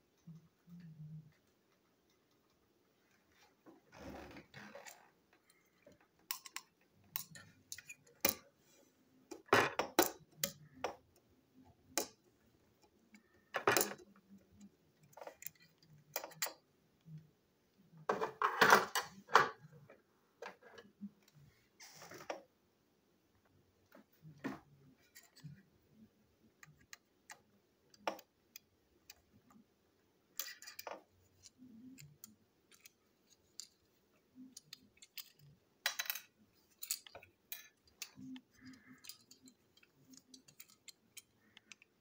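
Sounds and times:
plastic toy parts clicking: 4.8 - 8.4, 9.3 - 11.2, 11.8 - 16.6, 26.5 - 29.6, 30.3 - 42.0
metal screwdriver handled on table: 30.4 - 31.6.

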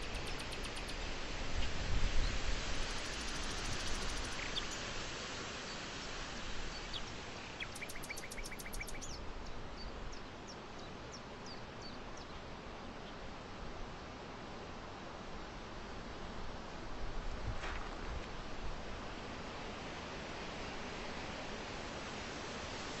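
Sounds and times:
birds chirping: 0.0 - 1.0, 2.9 - 4.8, 6.9 - 9.2
steady outdoor hiss: 0.0 - 23.0.

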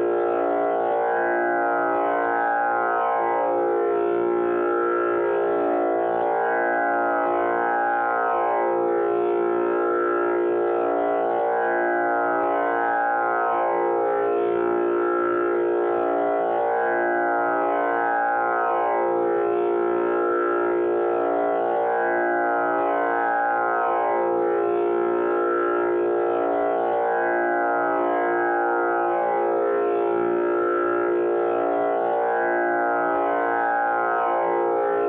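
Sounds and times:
tanpura drone: 0.0 - 35.0.

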